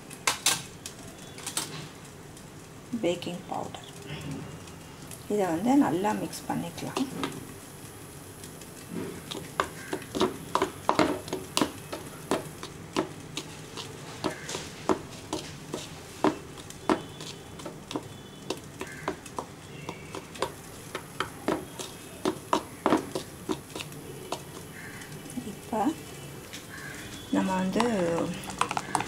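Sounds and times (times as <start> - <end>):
spoon stirring flour in bowl: 9.0 - 25.7, 27.4 - 29.0.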